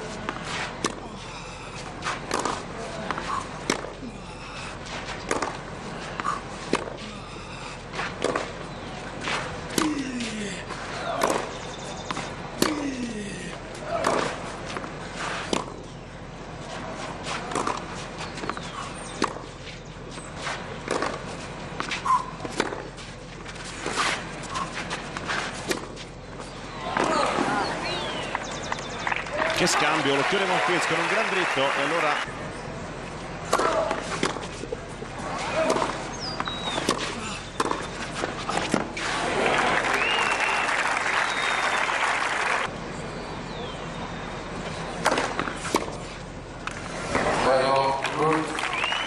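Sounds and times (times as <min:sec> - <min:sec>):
tennis racket hitting ball: 0:00.1 - 0:04.0, 0:04.8 - 0:07.1, 0:07.9 - 0:12.9, 0:13.7 - 0:15.8, 0:16.9 - 0:19.6, 0:20.4 - 0:26.1, 0:33.4 - 0:39.2, 0:44.9 - 0:47.3
crowd applause and cheering: 0:26.8 - 0:32.3, 0:39.0 - 0:42.7, 0:48.0 - 0:49.0.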